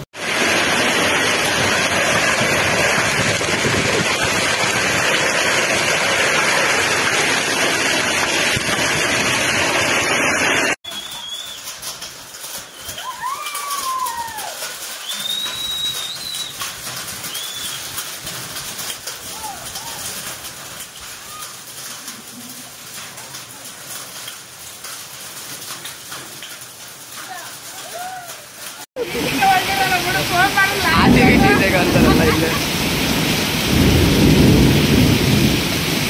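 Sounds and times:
hail and rain falling hard: 0.0s - 36.0s
short whistled calls: 10.9s - 11.7s, 15.0s - 16.6s, 17.3s - 17.9s.

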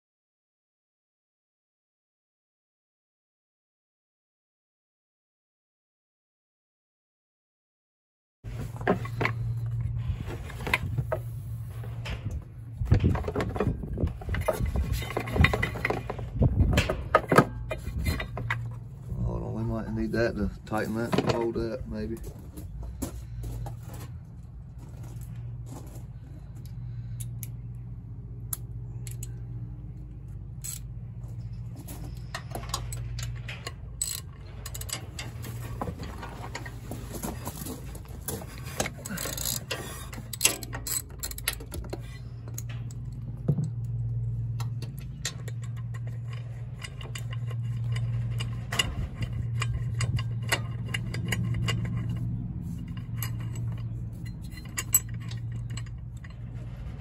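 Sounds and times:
steady low hum: 8.5s - 57.0s
hand tools clicking on metal: 31.9s - 57.0s.

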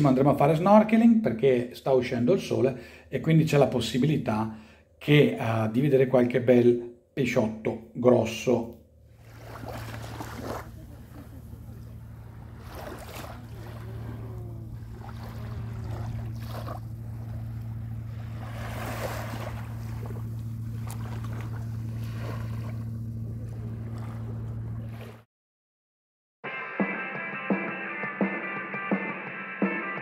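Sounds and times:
low engine hum: 9.1s - 25.2s
small waves lapping: 9.1s - 25.2s.

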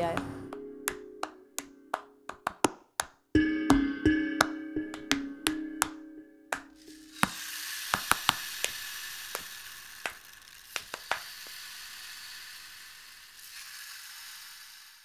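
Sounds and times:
sharp clicks and pops: 4.4s - 11.6s
steady high hiss: 6.5s - 15.0s.

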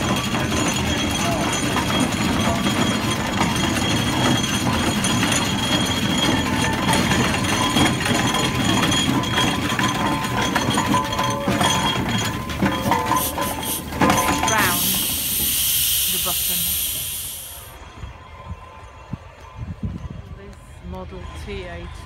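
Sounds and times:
metallic clinking: 0.0s - 16.4s
steam engine rumbling: 0.0s - 18.2s.

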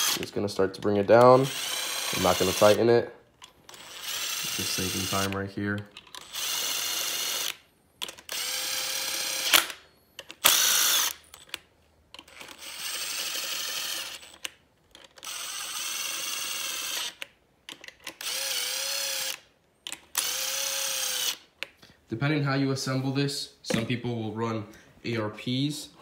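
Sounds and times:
cordless driver running bolts: 0.0s - 2.9s, 6.0s - 11.6s, 12.2s - 21.4s.

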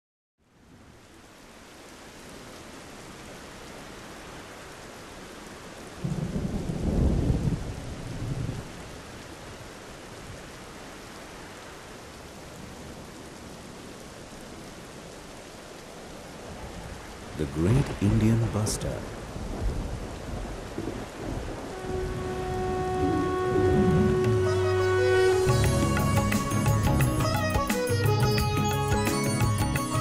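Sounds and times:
steady rain falling: 0.4s - 30.0s
thunder rumble: 6.0s - 8.9s, 16.4s - 27.4s.

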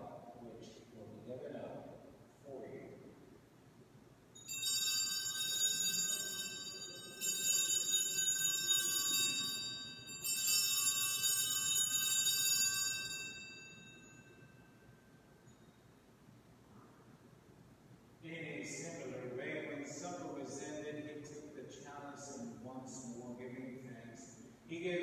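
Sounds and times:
altar bells jingling: 4.4s - 15.9s.

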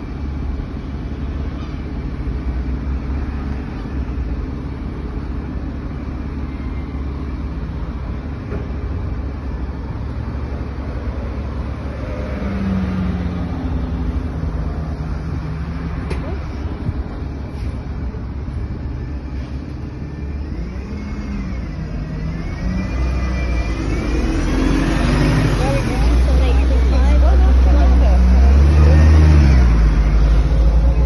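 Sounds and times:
bus engine rumbling: 0.0s - 31.0s.

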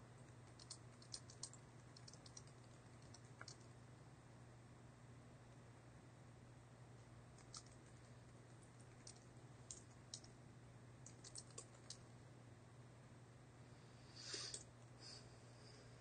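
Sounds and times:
keyboard keystrokes: 0.5s - 3.7s, 7.4s - 7.8s, 8.8s - 10.3s, 11.0s - 12.0s.

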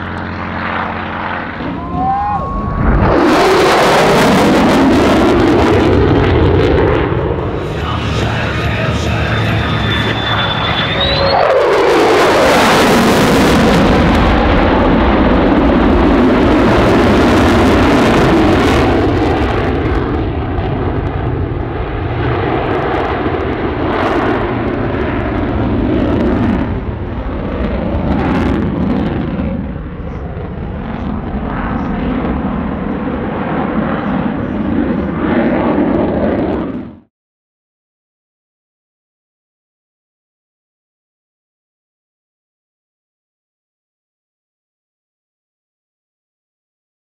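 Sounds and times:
jet fighter roaring past: 0.0s - 37.1s.

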